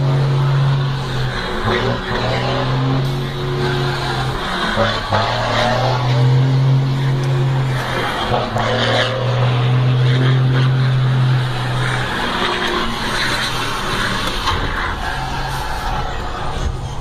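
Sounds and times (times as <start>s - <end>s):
bus diesel engine accelerating: 0.0s - 17.0s
road noise: 0.0s - 17.0s.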